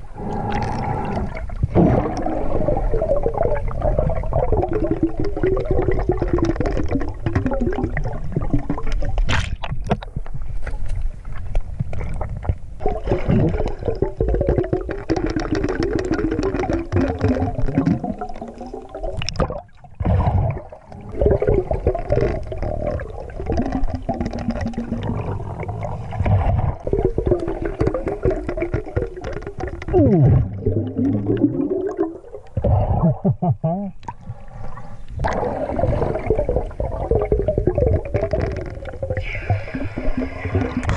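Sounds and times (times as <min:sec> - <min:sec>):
underwater rumble of moving water: 0:00.0 - 0:40.9
small clicks underwater: 0:04.8 - 0:12.9, 0:13.5 - 0:19.6, 0:20.8 - 0:30.0, 0:37.2 - 0:39.4.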